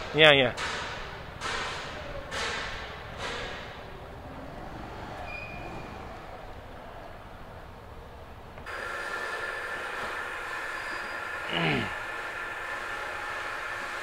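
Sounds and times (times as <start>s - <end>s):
workshop background noise: 0.0s - 5.4s, 8.4s - 14.0s
machine whining and hissing: 8.6s - 14.0s.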